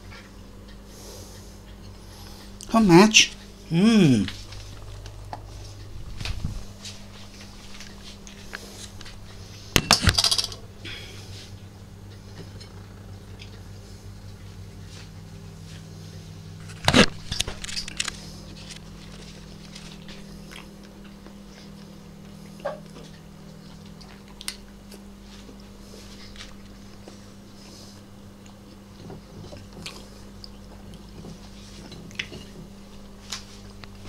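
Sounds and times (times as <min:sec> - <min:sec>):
low hum: 0:00.0 - 0:24.2
cats chewing: 0:04.3 - 0:09.7, 0:11.2 - 0:34.0.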